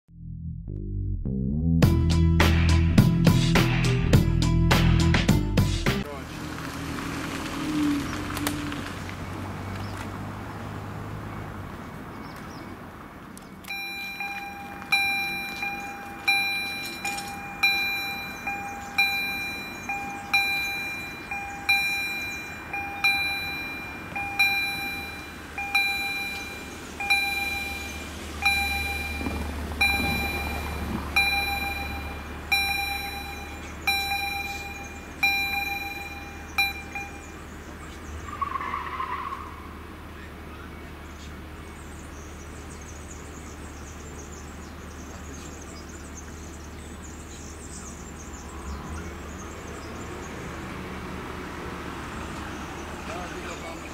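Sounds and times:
level-crossing warning bell: 13.7 - 37.4.

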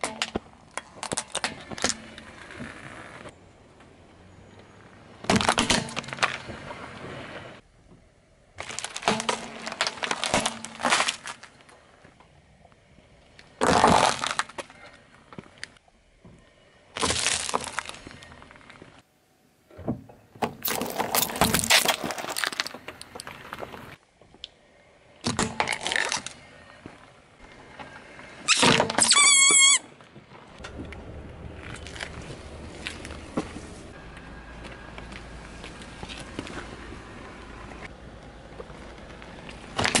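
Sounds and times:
tyre crushing plastic and candy: 8.6 - 11.7, 13.6 - 15.0, 17.0 - 18.9, 20.4 - 24.0.

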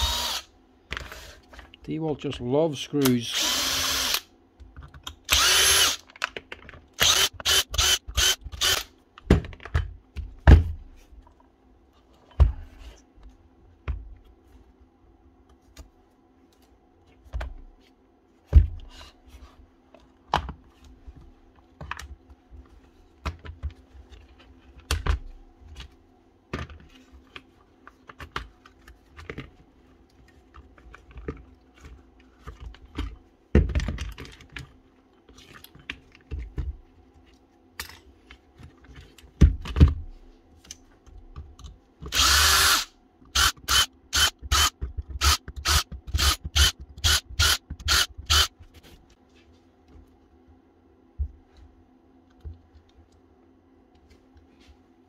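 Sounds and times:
power driver motor whirring: 0.0 - 0.5, 5.3 - 6.0, 42.1 - 48.5
faint steady hum: 0.0 - 55.0.

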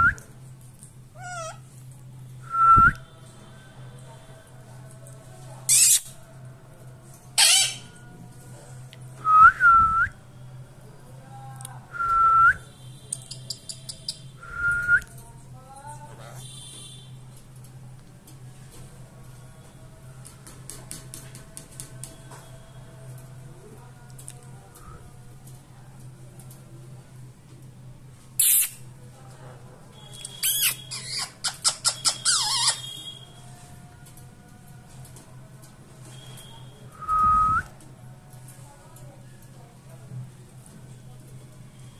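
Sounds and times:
parakeet screeching: 1.2 - 1.6, 5.7 - 6.1, 7.4 - 7.9, 30.4 - 33.0.

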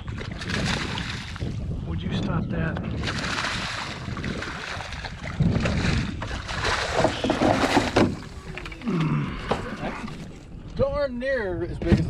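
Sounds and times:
fish thrashing and splashing in water: 0.0 - 1.6, 3.0 - 8.9.

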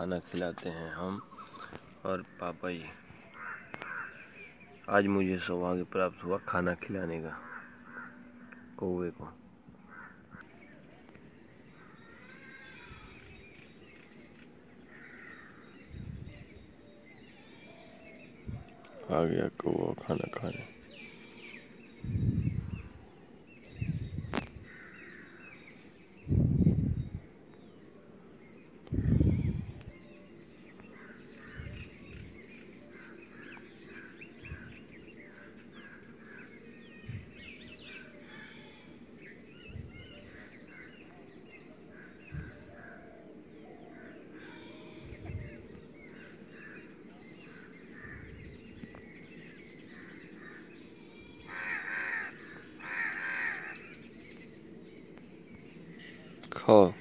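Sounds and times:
insects droning: 0.0 - 57.0
crow cawing: 3.3 - 4.4, 7.4 - 8.6, 9.9 - 10.5, 14.9 - 15.7, 24.7 - 25.4, 31.0 - 31.7, 48.0 - 48.3, 51.5 - 53.9.

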